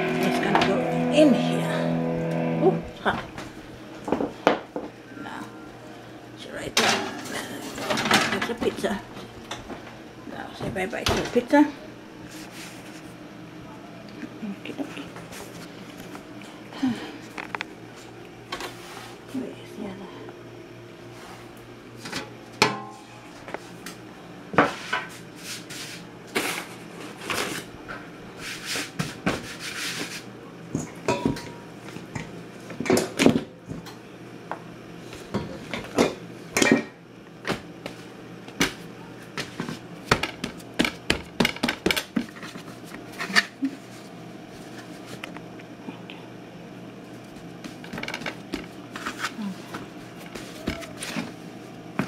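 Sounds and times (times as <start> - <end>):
dishes and utensils clinking: 30.8 - 31.6.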